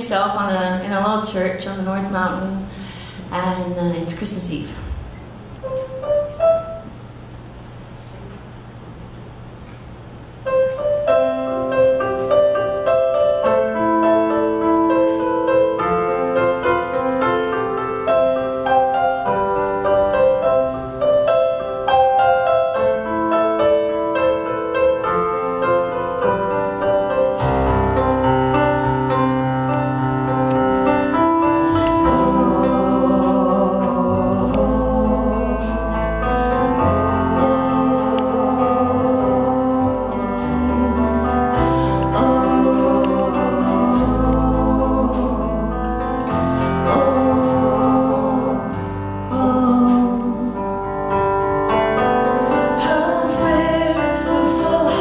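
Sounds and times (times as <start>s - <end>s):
keyboard piano notes: 0.0s - 55.0s
bass guitar: 26.1s - 55.0s.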